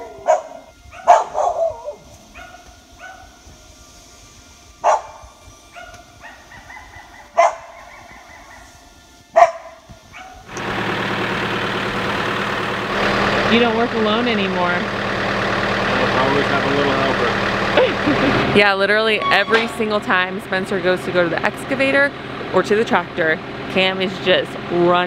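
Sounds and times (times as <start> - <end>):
dog barking: 0.0 - 3.3, 4.8 - 8.6, 9.4 - 10.5
tractor engine running: 9.1 - 25.0.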